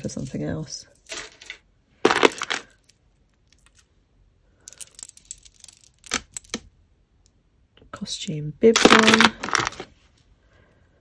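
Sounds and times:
jewellery clinking and rattling: 0:04.6 - 0:06.6.

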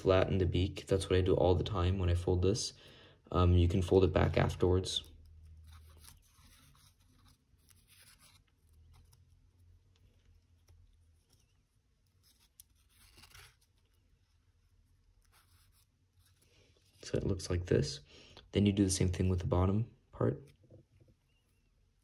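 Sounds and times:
paper crinkling: 0:04.2 - 0:17.1.

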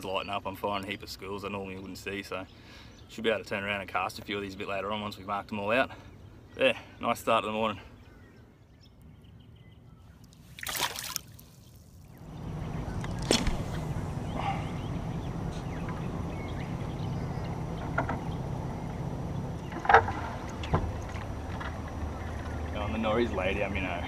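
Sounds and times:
low hum: 0:12.2 - 0:24.0
water rushing along canoe hull: 0:15.9 - 0:22.9.

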